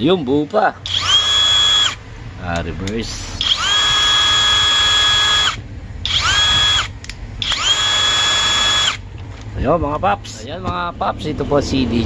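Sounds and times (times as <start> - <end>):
impact wrench whine: 0.8 - 2.0, 3.4 - 9.0.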